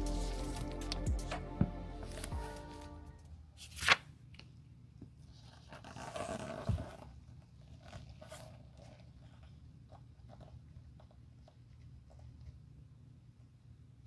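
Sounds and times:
background music: 0:00.0 - 0:03.4.

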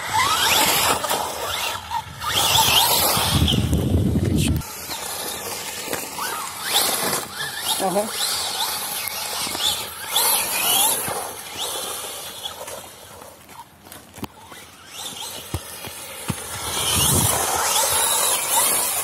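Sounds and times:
toy car motor whining: 0:00.0 - 0:19.0
tyres hissing on gravel: 0:04.5 - 0:19.0.

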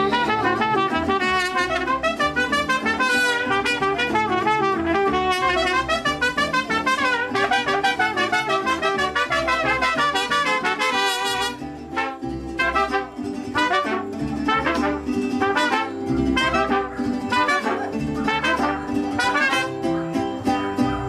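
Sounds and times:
trumpets playing: 0:00.0 - 0:20.6
strummed guitars: 0:00.0 - 0:21.0
deep bass guitar: 0:11.7 - 0:21.0.

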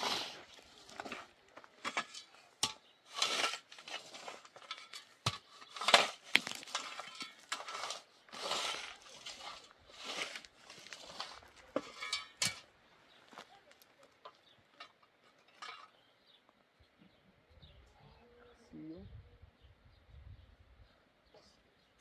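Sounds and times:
shovel digging stony soil: 0:00.0 - 0:12.7
stones clinking on metal blade: 0:00.8 - 0:12.7.

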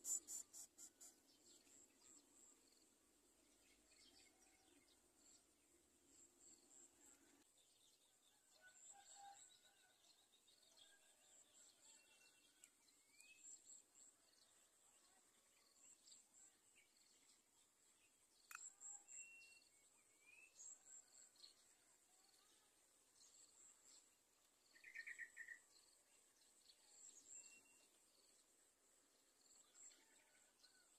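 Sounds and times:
bird chirps: 0:24.7 - 0:25.8.

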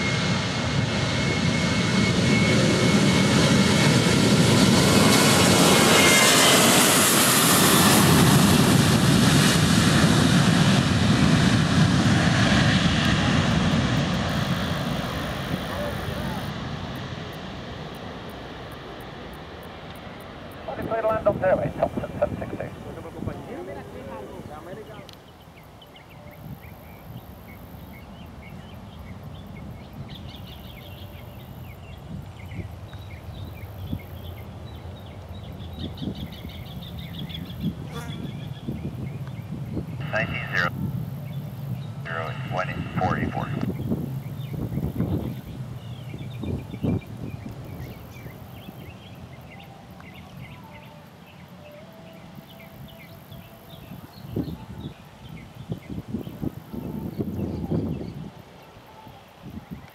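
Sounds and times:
distant jet engine rumble: 0:00.0 - 0:59.9
small birds chirping: 0:24.8 - 0:59.9.

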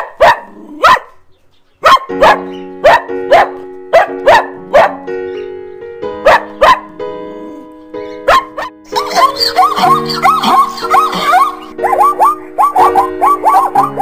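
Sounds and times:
dog barking: 0:00.0 - 0:01.2, 0:01.8 - 0:05.0, 0:06.2 - 0:06.9, 0:08.2 - 0:14.0
background music with held chords: 0:02.1 - 0:14.0.

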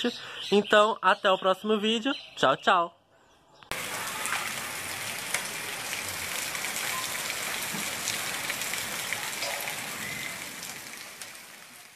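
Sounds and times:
heavy rain on concrete: 0:03.7 - 0:11.9.

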